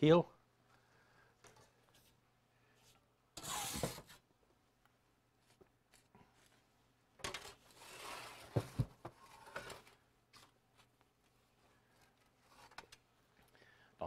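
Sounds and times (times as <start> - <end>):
metal peel scraping wood: 3.4 - 4.1, 7.7 - 8.6.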